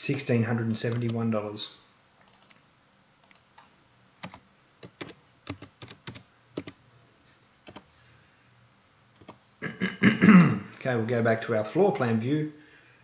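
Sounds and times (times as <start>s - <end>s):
computer keyboard typing: 2.2s - 2.6s, 3.2s - 3.6s, 4.2s - 6.8s, 7.7s - 7.9s.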